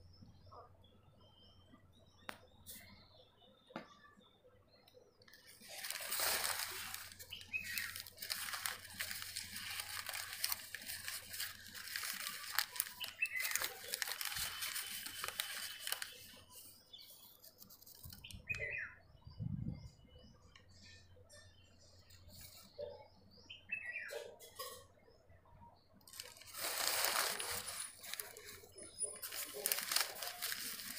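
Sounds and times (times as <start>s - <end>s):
paper rustling and crinkling: 5.3s - 18.4s, 26.1s - 30.9s.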